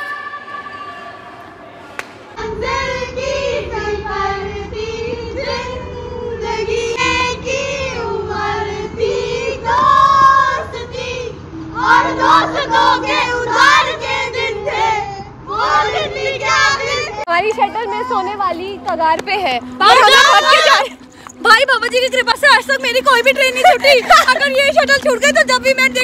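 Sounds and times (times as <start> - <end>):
women singing: 2.4 - 18.4, 19.7 - 26.0
steady held note: 10.0 - 16.4.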